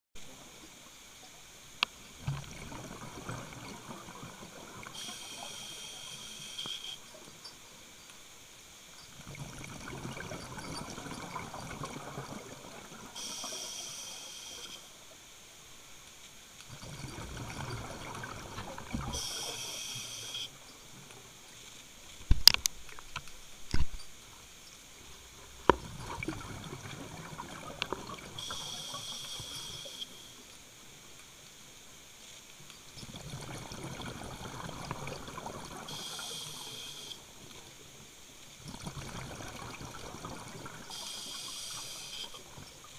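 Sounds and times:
regulator inhale hiss: 4.9s - 7.1s, 13.2s - 14.9s, 19.0s - 20.5s, 28.4s - 30.4s, 35.9s - 37.3s, 40.8s - 42.4s.

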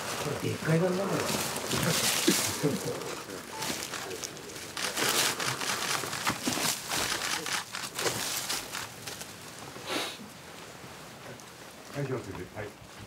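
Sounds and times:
cloth rustling: 0.0s - 9.8s
cloth scraping against rock: 0.0s - 10.2s.

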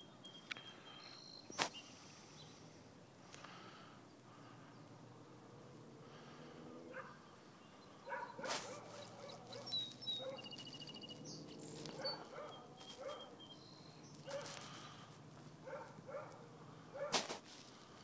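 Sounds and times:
bird trill: 0.0s - 2.6s, 7.0s - 15.0s
small birds chirping: 0.0s - 18.0s.

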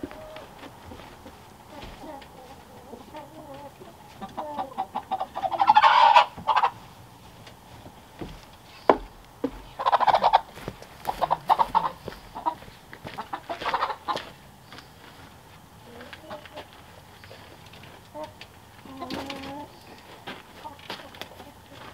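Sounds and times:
chickens clucking: 0.0s - 21.9s.

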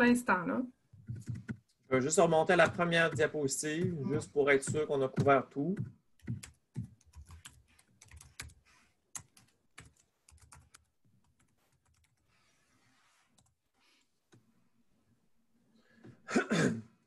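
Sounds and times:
computer keys clicking: 1.1s - 1.8s, 4.7s - 12.2s.

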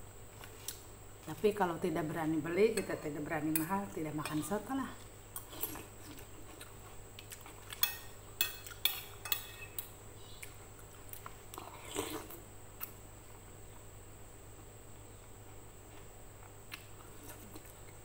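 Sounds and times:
cutlery clinking on a plate: 7.8s - 9.8s
mouth sounds of eating: 10.2s - 13.0s
soft slurping: 11.5s - 12.4s.

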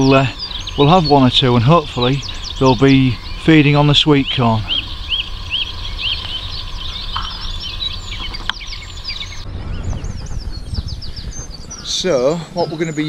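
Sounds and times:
bird repeating short chirp: 0.0s - 9.4s
birds chirping and trilling: 0.0s - 13.0s
steady low rumble: 0.0s - 13.0s.

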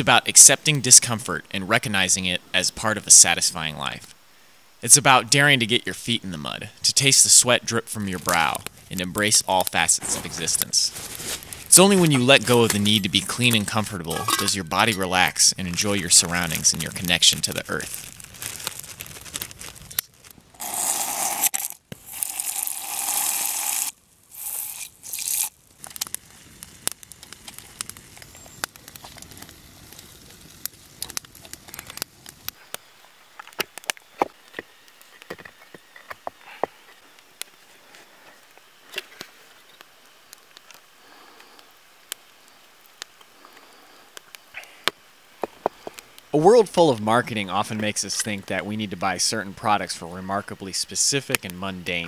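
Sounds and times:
small crackles and clicks: 7.0s - 52.0s
plastic bag crinkling: 10.0s - 13.8s, 15.7s - 23.9s
flour pouring into metal mug: 20.6s - 25.5s.

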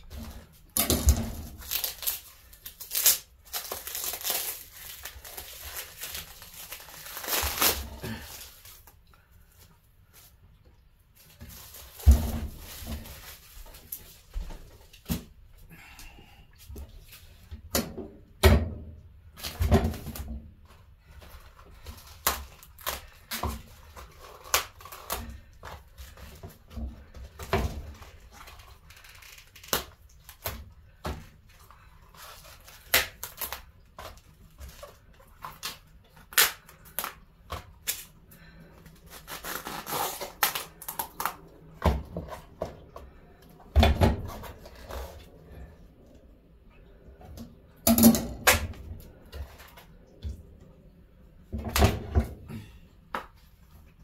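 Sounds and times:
cabbage leaves snapping and tearing: 0.1s - 9.0s, 21.8s - 26.4s, 27.4s - 42.5s.

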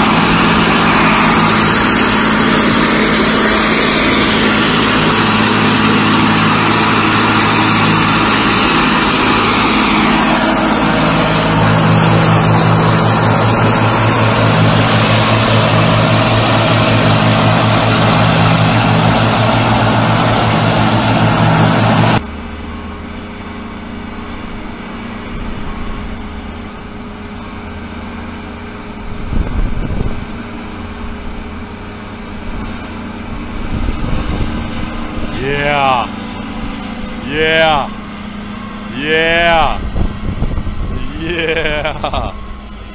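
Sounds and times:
engine idling quietly: 0.0s - 35.3s
tractor diesel engines under load: 0.0s - 42.9s.

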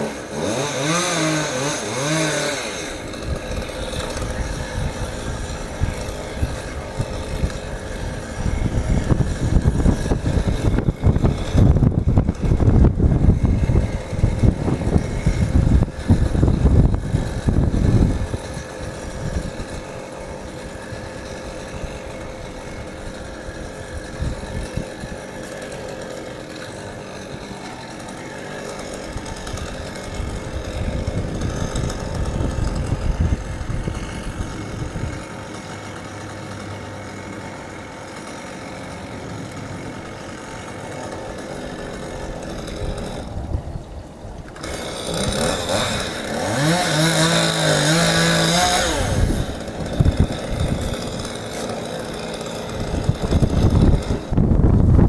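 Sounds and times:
small engine running: 0.0s - 55.0s
wind buffeting microphone: 3.2s - 19.8s, 23.9s - 25.1s, 29.4s - 35.2s, 48.8s - 51.2s, 52.7s - 55.0s.

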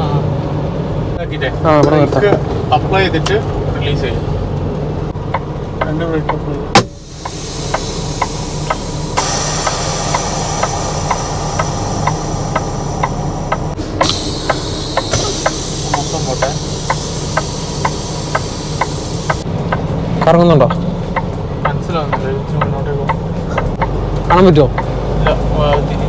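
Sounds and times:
truck engine running: 0.0s - 26.0s
loud hiss: 6.8s - 19.4s
sharp repeating click: 6.8s - 19.8s.

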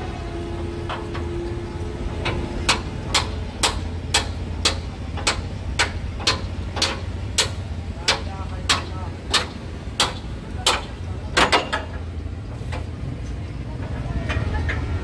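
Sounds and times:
hammer strikes: 2.2s - 12.0s.

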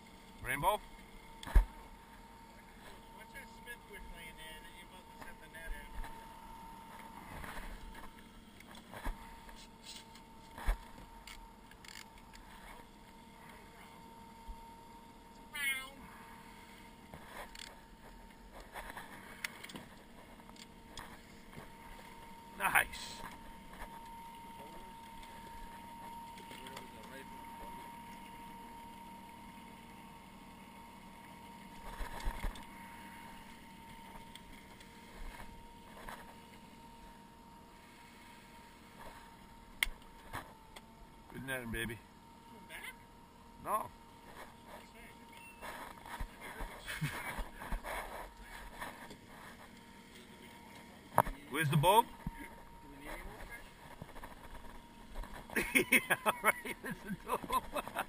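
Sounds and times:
outboard motor humming: 0.0s - 58.0s.

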